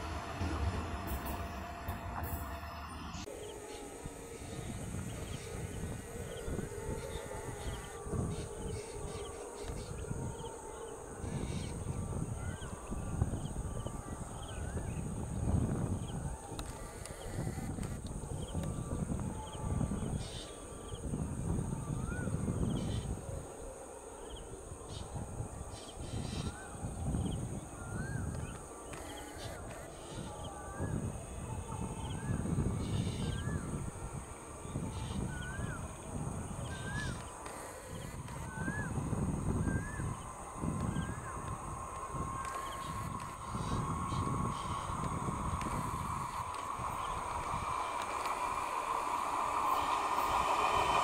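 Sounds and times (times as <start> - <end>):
low uneven rumble: 0.0 - 16.8, 30.2 - 51.0
steady hum: 0.0 - 51.0
insect buzz: 24.0 - 51.0
bird whistling rising-falling notes: 25.8 - 51.0.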